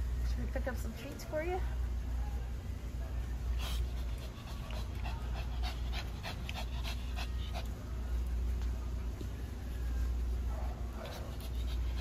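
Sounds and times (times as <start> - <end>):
steady low hum: 0.0 - 12.0
dog breathing quickly: 3.6 - 7.8, 11.0 - 12.0.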